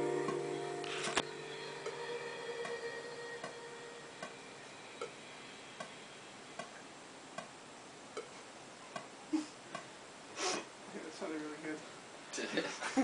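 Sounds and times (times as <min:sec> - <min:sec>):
metronome clicking: 0:02.6 - 0:02.8
person laughing: 0:12.4 - 0:13.0.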